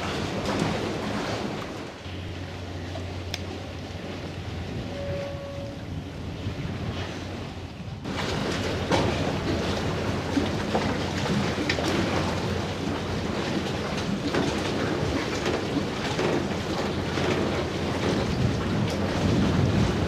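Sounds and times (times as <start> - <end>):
wind buffeting microphone: 0.0 - 20.0
faint clicks: 3.3 - 3.5.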